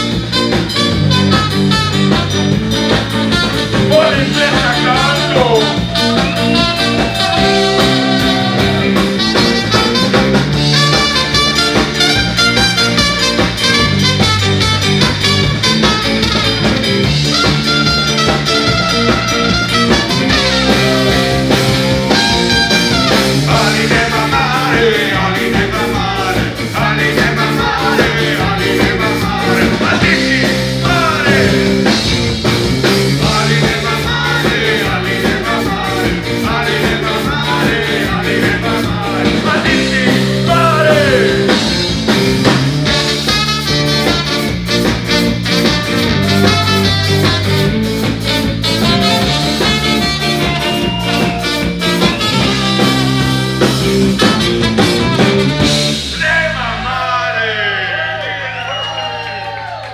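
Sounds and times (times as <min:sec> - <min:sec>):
drum and cymbal hits: 0:00.0 - 0:56.8
live rock band playing: 0:00.0 - 0:57.1
trumpet lines: 0:03.2 - 0:23.5, 0:42.9 - 0:57.0.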